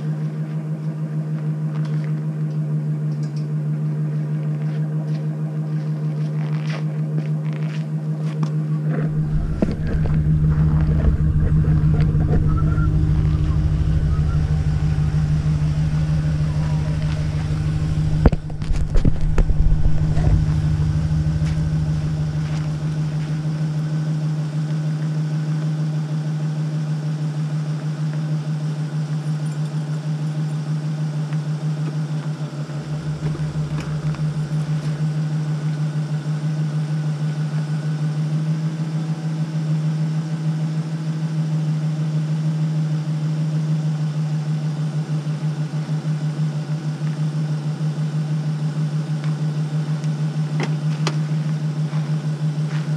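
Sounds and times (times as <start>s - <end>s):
truck engine idling: 9.1s - 24.2s, 32.0s - 36.4s.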